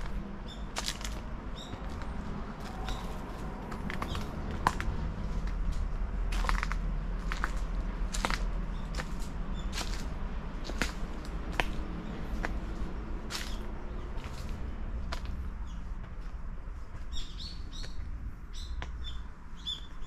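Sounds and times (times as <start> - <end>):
crunching footsteps: 0.0 - 17.1.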